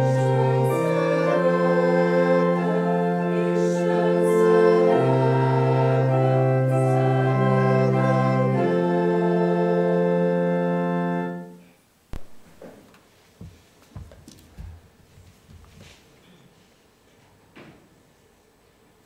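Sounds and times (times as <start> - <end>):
organ playing hymn chords: 0.0 - 11.6.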